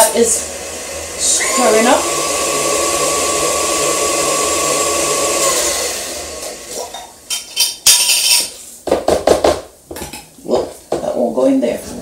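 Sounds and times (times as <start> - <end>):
stand mixer motor running: 0.0 - 6.9.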